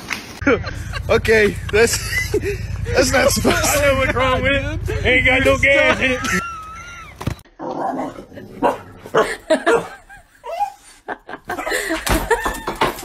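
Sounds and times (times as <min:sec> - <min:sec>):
dog barking: 0:08.6 - 0:10.0.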